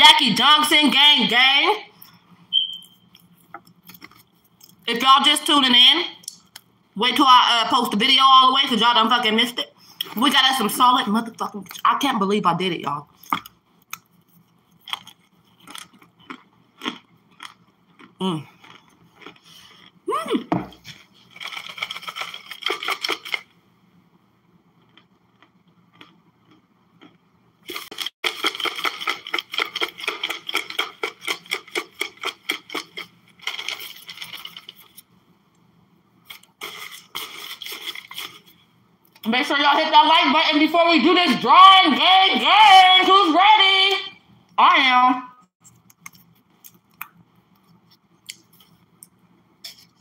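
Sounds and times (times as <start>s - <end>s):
crunching and chewing: 3.0s - 4.8s, 13.2s - 20.0s, 20.8s - 23.5s, 24.7s - 35.1s, 36.2s - 39.3s, 45.6s - 50.0s.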